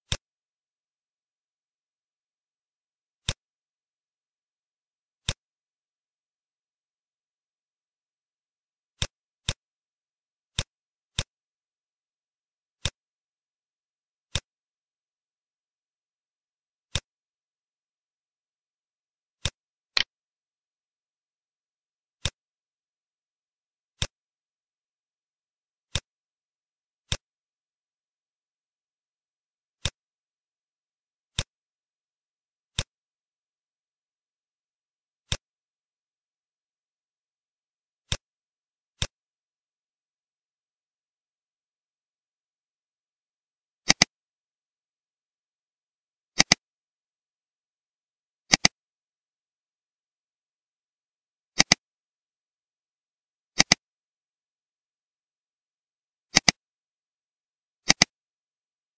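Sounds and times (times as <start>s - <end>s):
computer mouse clicks: 3.2s - 3.5s, 9.0s - 9.6s, 10.5s - 11.4s, 12.8s - 13.0s, 19.4s - 20.1s, 22.2s - 22.4s, 24.0s - 24.2s, 25.9s - 26.1s, 29.8s - 30.0s, 31.3s - 31.6s, 32.7s - 33.0s, 39.0s - 39.2s, 43.8s - 44.2s, 46.4s - 46.7s, 48.5s - 48.8s, 51.6s - 51.8s, 53.6s - 53.9s, 56.3s - 56.6s, 57.8s - 58.2s.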